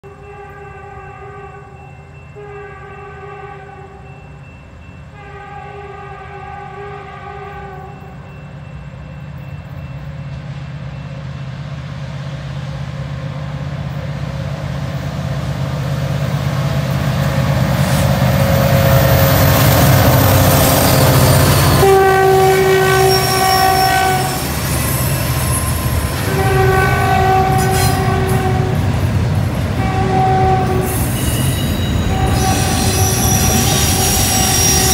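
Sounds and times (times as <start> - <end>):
train horn blasts: 0.0 - 4.1, 5.1 - 8.2, 19.8 - 29.0, 29.7 - 34.9
diesel locomotive rumble: 8.0 - 34.9
train wheel squeal: 17.2 - 26.4, 27.5 - 28.1, 30.7 - 34.9.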